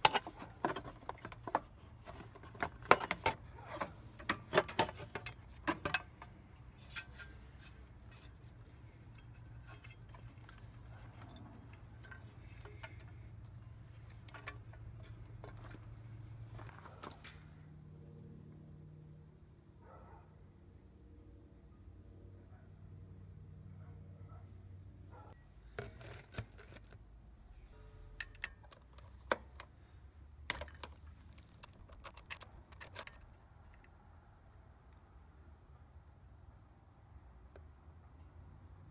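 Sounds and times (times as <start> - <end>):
plastic panels clicking and knocking: 0.0 - 6.4.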